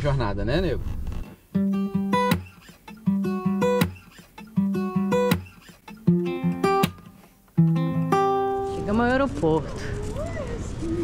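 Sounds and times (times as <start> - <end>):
guitar picking plucked notes: 1.5 - 9.0.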